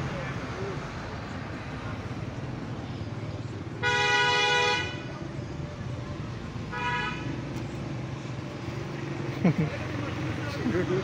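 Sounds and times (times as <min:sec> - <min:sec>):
vehicle horn honk: 0:03.8 - 0:05.0, 0:06.7 - 0:07.3.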